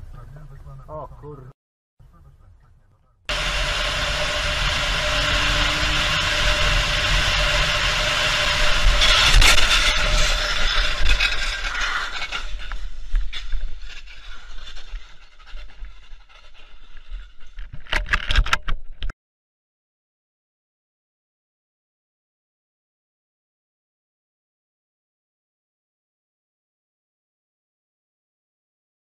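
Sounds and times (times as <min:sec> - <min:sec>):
vehicle road and wind noise: 0:03.3 - 0:12.7
vehicle crash scraping and grinding: 0:04.2 - 0:16.6.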